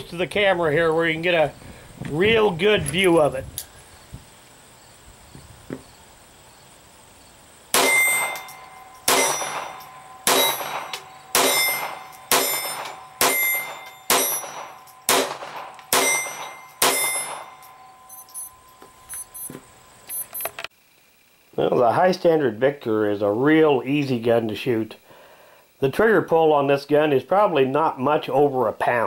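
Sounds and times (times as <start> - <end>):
pistol shots: 7.7 - 17.8.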